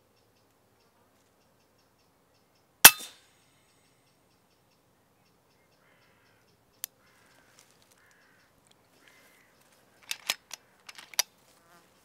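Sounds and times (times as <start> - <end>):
distant crows cawing: 5.7 - 11.2.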